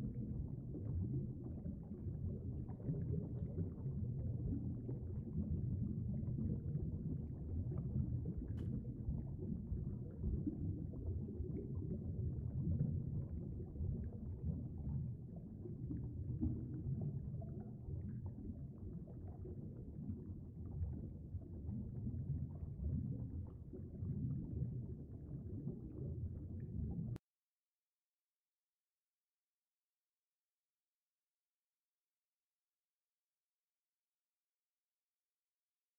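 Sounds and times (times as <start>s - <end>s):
stream water rumbling underwater: 0.0s - 27.2s
faint click: 8.5s - 8.8s.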